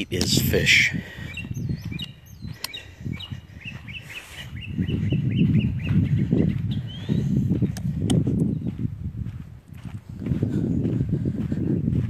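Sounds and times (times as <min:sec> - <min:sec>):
osprey chirping: 0:01.2 - 0:07.4.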